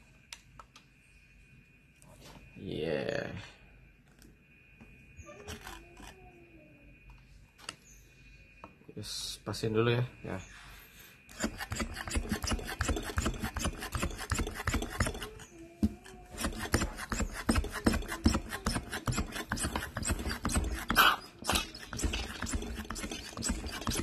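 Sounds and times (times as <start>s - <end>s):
brief squeak: 5.2s - 6.3s.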